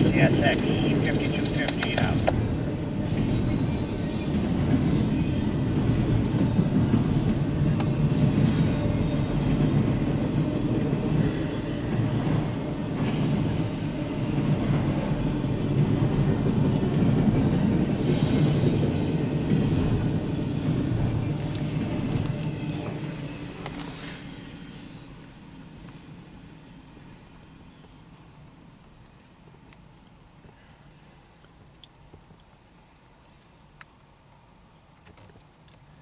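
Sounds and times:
steel wheels rumbling on rails: 0.0 - 26.4
high wheel squeal: 3.1 - 7.2, 13.5 - 15.6, 19.5 - 25.0.

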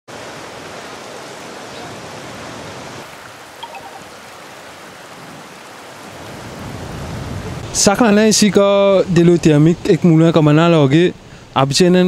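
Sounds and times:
river water flowing over stones: 0.1 - 9.4.

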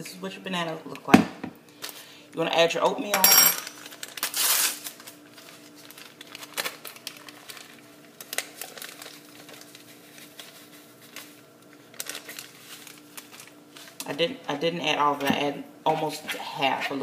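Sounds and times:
faint steady hum: 0.0 - 17.0
paper packet crinkling: 3.7 - 14.1.

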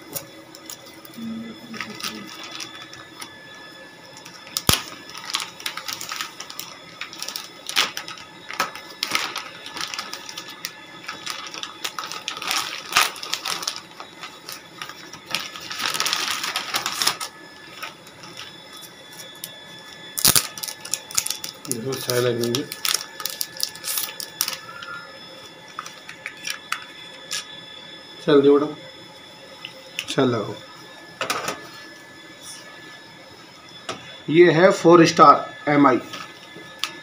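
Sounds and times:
plastic bag crinkling: 1.7 - 3.3, 4.2 - 18.8, 20.2 - 25.0.

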